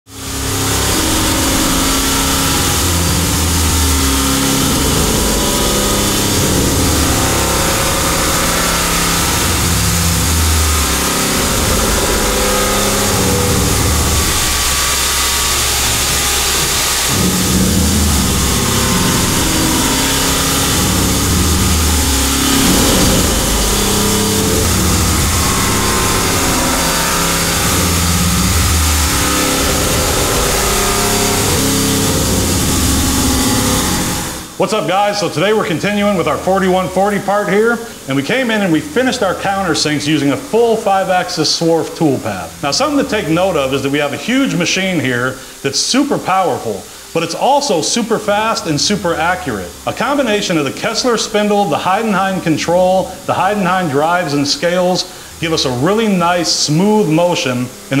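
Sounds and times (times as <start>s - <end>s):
milling machine cutting metal: 0.1s - 58.0s.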